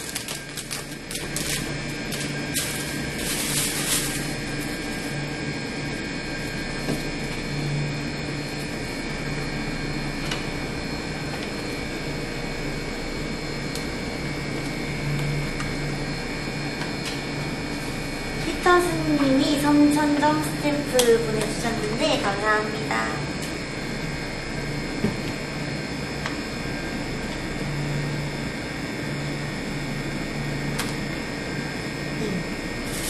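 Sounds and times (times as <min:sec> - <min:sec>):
plastic wrapper crinkling: 0:00.0 - 0:05.2
steady background hum: 0:00.0 - 0:33.0.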